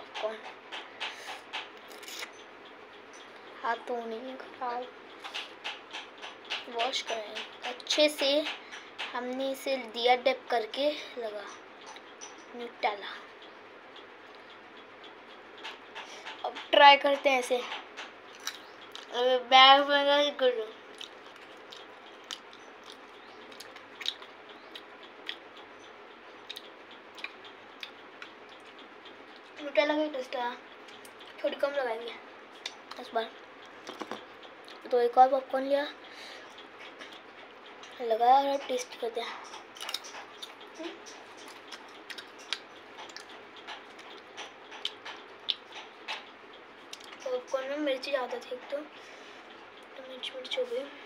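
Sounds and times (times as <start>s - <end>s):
person chewing popcorn: 1.1s - 2.4s, 18.3s - 19.1s, 20.9s - 25.6s, 39.5s - 46.2s, 46.8s - 47.2s.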